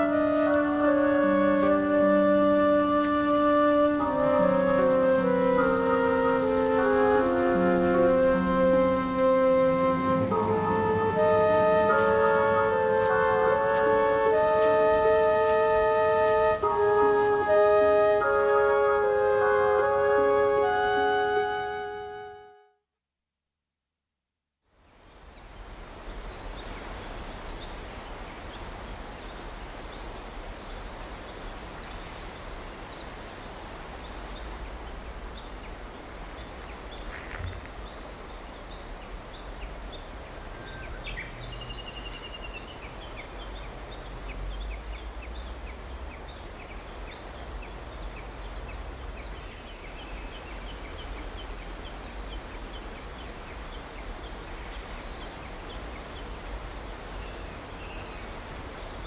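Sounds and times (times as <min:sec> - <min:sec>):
even hiss: 0:00.0 - 0:21.8.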